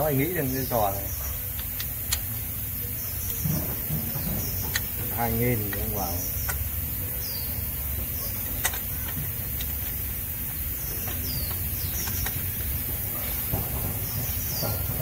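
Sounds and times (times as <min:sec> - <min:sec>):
bird chirps: 0:02.8 - 0:09.0, 0:10.5 - 0:15.0.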